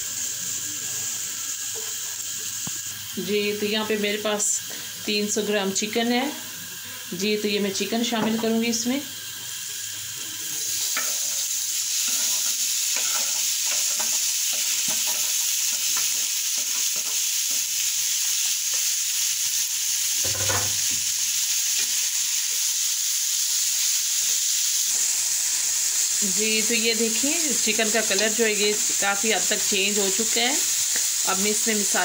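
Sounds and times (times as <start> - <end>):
chicken sizzling in oil: 0.0 - 32.0
knock on pan: 20.2 - 21.0.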